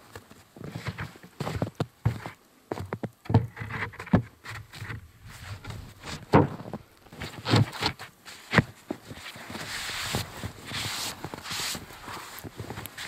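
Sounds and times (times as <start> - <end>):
scraping against board and snow: 0.1 - 13.0
dull wooden knocks: 2.1 - 6.8.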